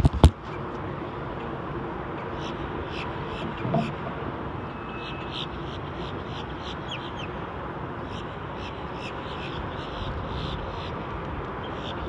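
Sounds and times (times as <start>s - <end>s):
water noise: 0.0s - 6.6s
wind: 0.0s - 12.0s.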